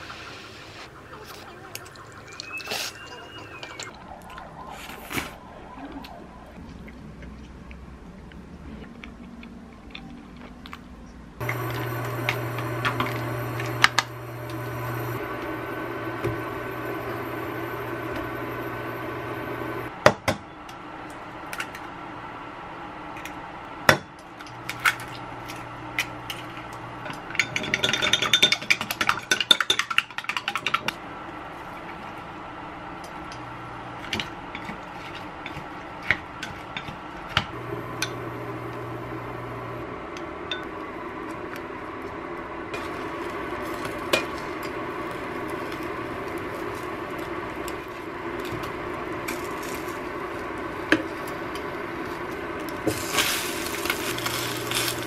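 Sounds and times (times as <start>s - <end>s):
steady low hum: 11.0s - 20.0s, 31.0s - 55.0s
chopsticks beating eggs in mug: 42.8s - 55.0s.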